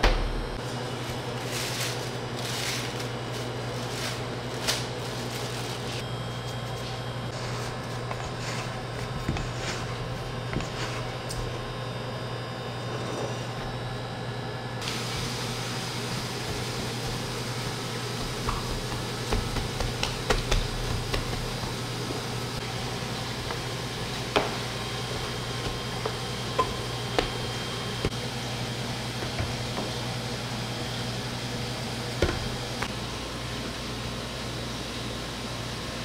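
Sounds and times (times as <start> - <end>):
low machinery hum: 0.0 - 36.0.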